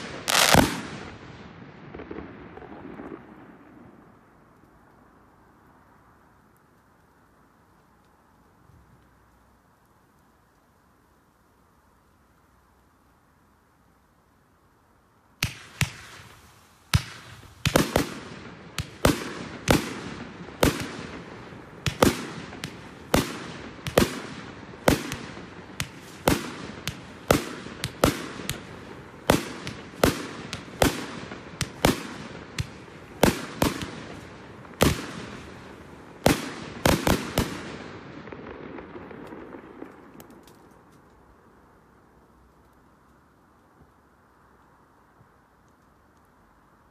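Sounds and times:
fireworks exploding: 0.0 - 4.5, 15.4 - 40.9.

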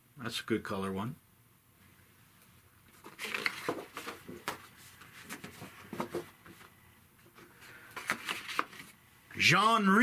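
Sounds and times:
paper rustles and taps: 2.9 - 8.9.

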